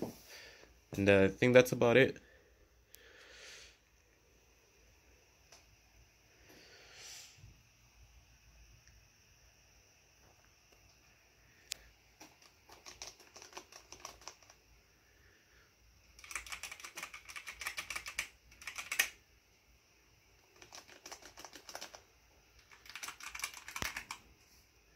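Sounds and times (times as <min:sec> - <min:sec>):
clicky keyboard typing: 0:12.2 - 0:14.6, 0:16.2 - 0:19.2, 0:20.4 - 0:22.0, 0:22.6 - 0:24.2
soft keyboard typing: 0:12.2 - 0:14.6, 0:16.1 - 0:19.2, 0:20.4 - 0:24.3.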